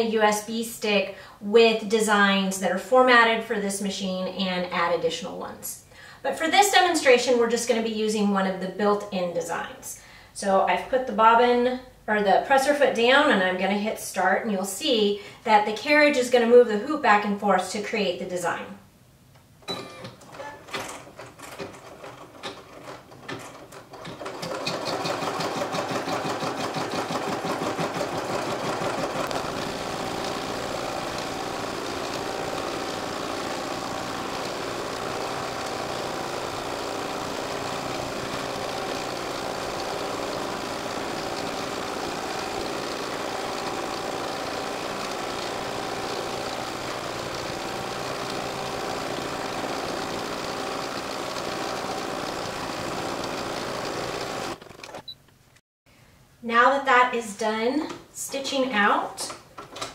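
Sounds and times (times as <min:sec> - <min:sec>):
embroidery machine stitching: 0:19.8 - 0:55.2.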